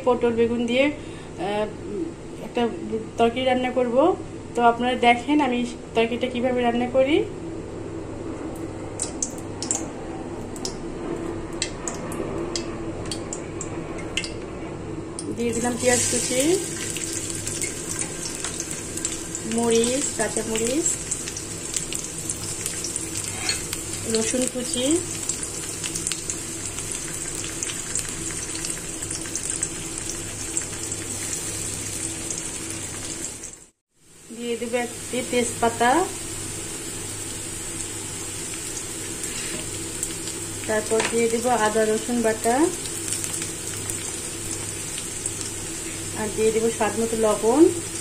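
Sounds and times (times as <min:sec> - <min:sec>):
vegetables sizzling in hot oil: 0:15.4 - 0:48.0.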